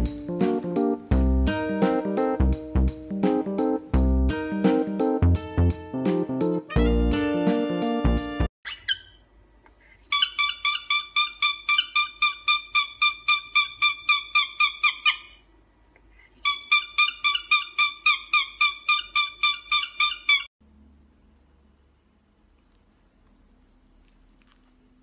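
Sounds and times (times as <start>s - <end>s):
cockatiel whistled chirps: 16.4s - 20.5s.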